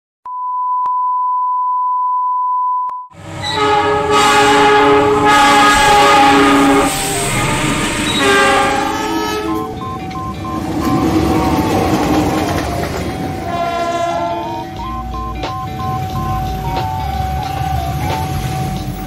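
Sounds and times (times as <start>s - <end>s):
locomotive air horn chord: 3.2s - 9.8s, 13.3s - 14.9s
rumble of passing train: 3.2s - 19.0s
steady test tone: 6.0s - 19.0s.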